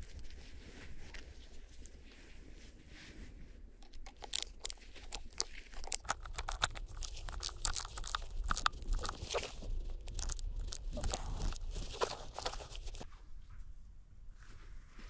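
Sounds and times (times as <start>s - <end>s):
screwdriver tightening hose clamp: 3.8s - 9.2s.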